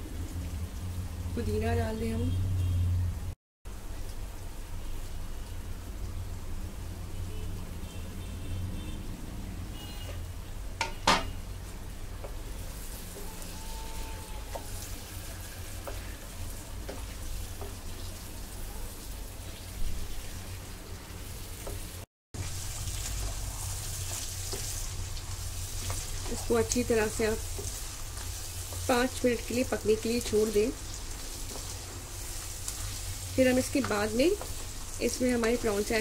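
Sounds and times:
food sizzling in a pot: 0:09.8 - 0:36.0.

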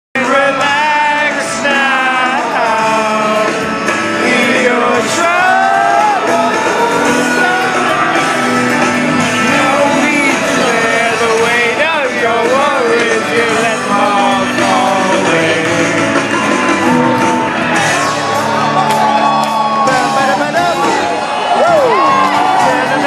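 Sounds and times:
man singing: 0:00.2 - 0:18.2
acoustic guitar: 0:00.2 - 0:23.0
audience singing and shouting along: 0:00.2 - 0:23.0
live rock band: 0:00.2 - 0:23.0.

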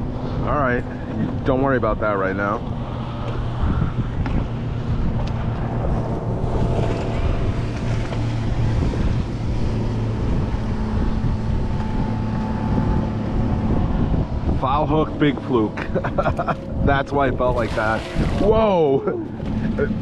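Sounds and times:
steady low hum: 0:00.0 - 0:20.0
wind buffeting microphone: 0:00.0 - 0:20.0
water lapping against hull: 0:15.5 - 0:20.0.

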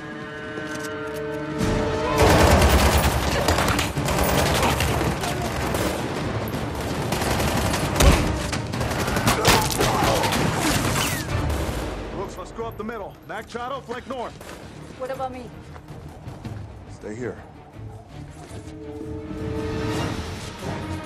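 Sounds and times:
film score music: 0:00.0 - 0:21.0.

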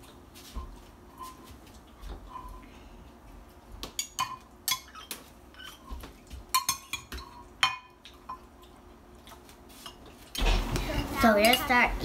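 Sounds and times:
metal spoons clinking against bowls: 0:03.9 - 0:08.8, 0:11.4 - 0:11.8.

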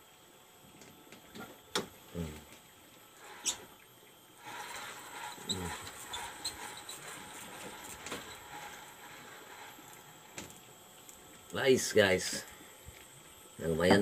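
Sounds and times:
fishing reel whirring: 0:04.4 - 0:10.1.

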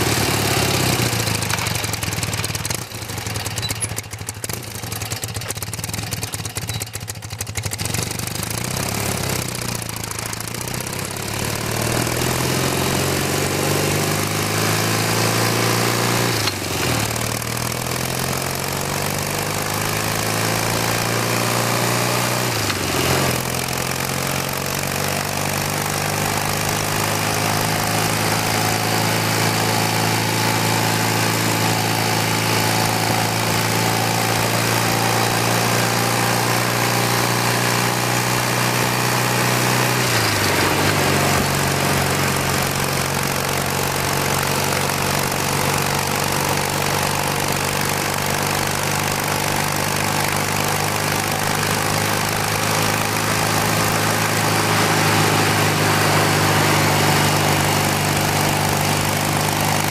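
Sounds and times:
motorcycle engine running: 0:00.0 - 0:59.9
wind and road noise: 0:19.4 - 0:47.9.

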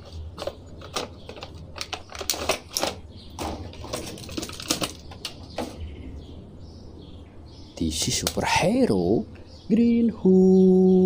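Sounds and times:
clicks and rustles: 0:00.0 - 0:05.8.

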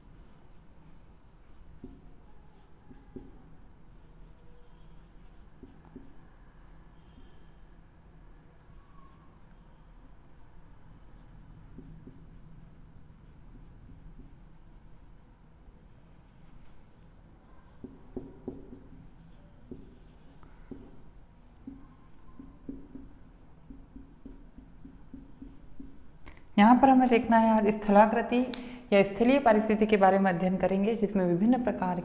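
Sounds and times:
marker pen on whiteboard: 0:01.8 - 0:06.2, 0:07.0 - 0:07.5, 0:08.6 - 0:09.4, 0:11.2 - 0:16.8, 0:17.5 - 0:27.3.

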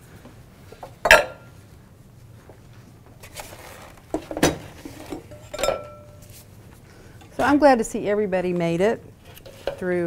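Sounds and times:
bowl clinking on counter: 0:05.3 - 0:06.2.

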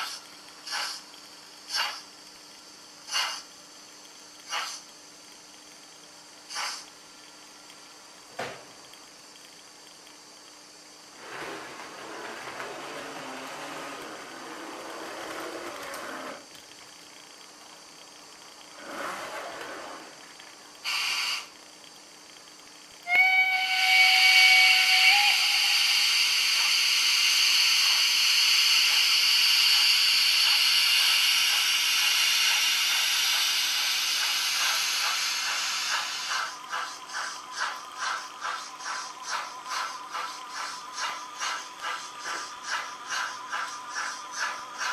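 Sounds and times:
steam locomotive hissing: 0:00.0 - 0:02.1, 0:03.0 - 0:03.5, 0:04.4 - 0:04.9, 0:06.5 - 0:06.9, 0:11.1 - 0:16.4, 0:20.8 - 0:21.5, 0:23.0 - 0:44.9
model train running on track: 0:11.2 - 0:16.4, 0:23.1 - 0:44.9.

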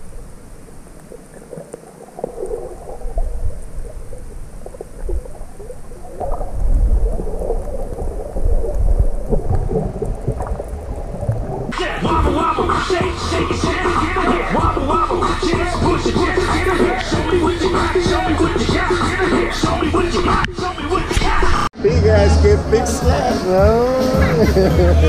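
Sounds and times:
water sloshing and gurgling: 0:00.0 - 0:21.6
muffled underwater rumble: 0:00.0 - 0:21.7
music: 0:11.8 - 0:25.0.

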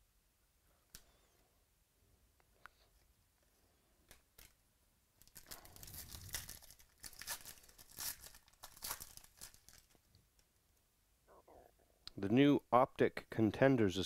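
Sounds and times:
foil wrapper tearing and crinkling: 0:05.2 - 0:10.0.

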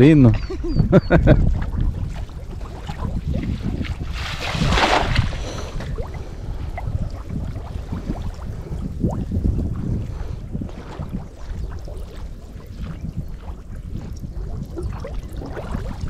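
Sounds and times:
water splashing and sloshing: 0:01.2 - 0:16.0
loud rushing splash: 0:02.6 - 0:06.1.

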